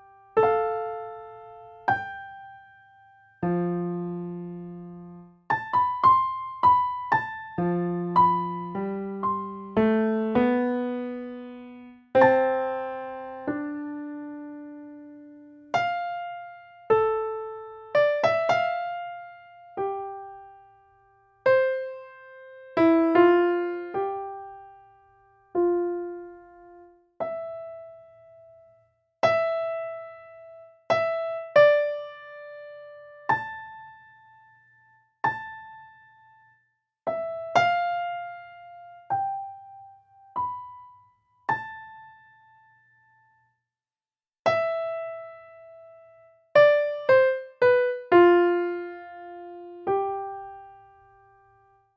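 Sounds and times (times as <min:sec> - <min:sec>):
slow solo piano melody: 0:00.0 - 0:43.5, 0:44.4 - 0:51.9.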